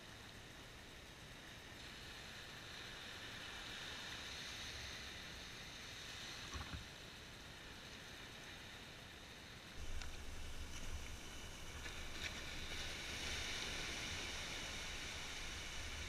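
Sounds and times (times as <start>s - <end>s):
surf washing over sand: 9.4s - 16.0s.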